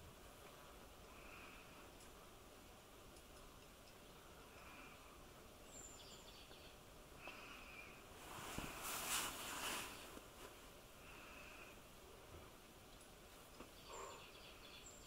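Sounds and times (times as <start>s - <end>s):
hissing rustle: 7.2s - 14.2s.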